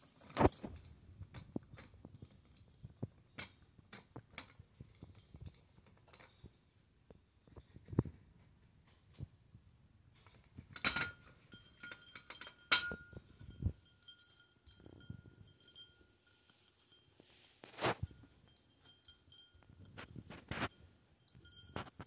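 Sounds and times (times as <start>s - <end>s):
ceramic bowl clinking on wire stand: 0.0s - 6.6s, 10.2s - 22.0s.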